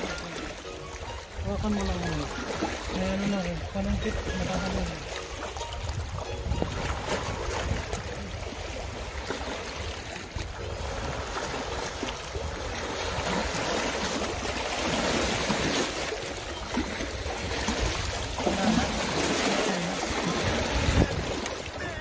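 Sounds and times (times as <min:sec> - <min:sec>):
water splashing on rocks: 0:12.8 - 0:22.0.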